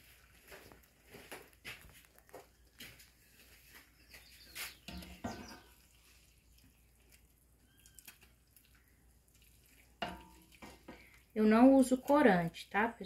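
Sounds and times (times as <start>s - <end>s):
wooden spoon scraping pan: 3.4s - 6.2s.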